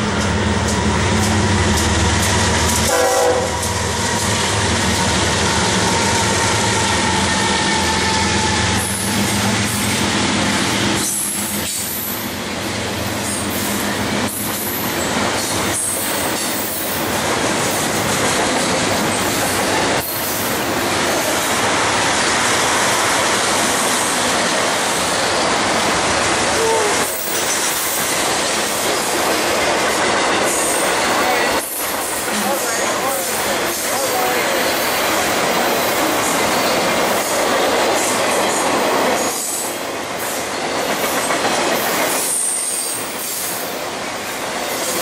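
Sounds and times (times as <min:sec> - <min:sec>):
diesel locomotive rumble: 0:00.0 - 0:22.0
train wheels rattling on rails: 0:00.0 - 0:45.0.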